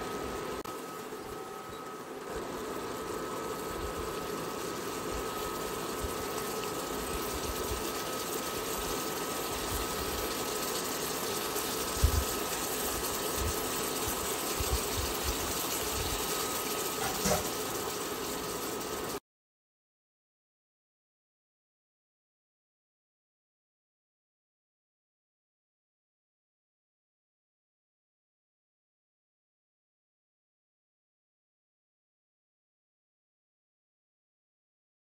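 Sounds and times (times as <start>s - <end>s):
faint high whine: 0.0s - 17.6s
food sizzling in a skillet: 0.0s - 19.2s.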